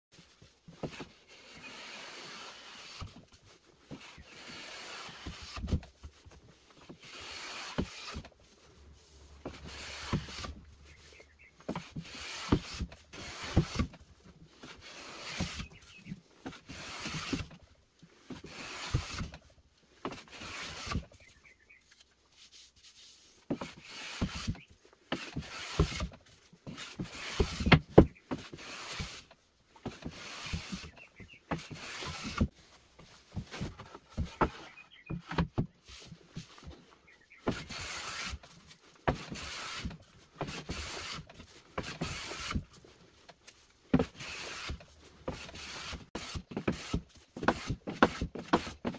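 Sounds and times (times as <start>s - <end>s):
sanding block rasping on wood: 4.1s - 5.6s, 7.0s - 8.2s, 9.4s - 10.5s, 11.9s - 13.8s, 14.8s - 15.7s, 16.6s - 17.4s, 18.5s - 19.2s, 20.3s - 21.0s, 22.5s - 24.5s, 25.2s - 26.1s, 26.7s - 27.8s, 28.4s - 29.2s, 29.9s - 32.5s, 37.5s - 38.4s, 39.1s - 42.6s, 44.0s - 48.9s.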